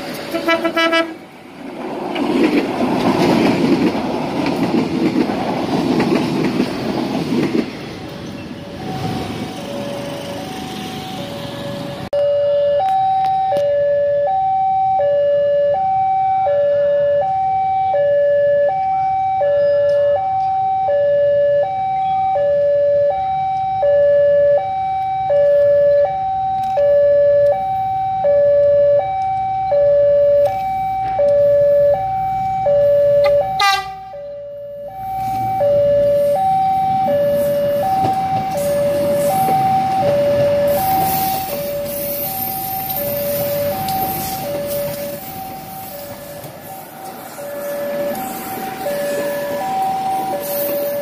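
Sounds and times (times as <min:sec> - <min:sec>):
train rumble: 0:00.0 - 0:12.2, 0:29.1 - 0:51.0
two-tone level crossing alarm: 0:08.7 - 0:51.0.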